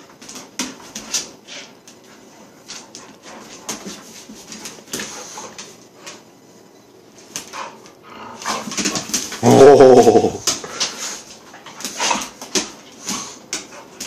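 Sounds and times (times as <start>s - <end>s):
dogs scuffling: 0.0s - 6.4s, 7.0s - 14.0s
dogs growling: 9.3s - 10.8s.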